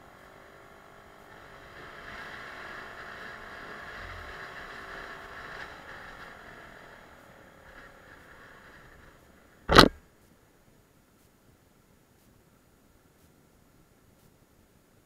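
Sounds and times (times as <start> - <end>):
scooter engine whine: 0.0 - 10.0.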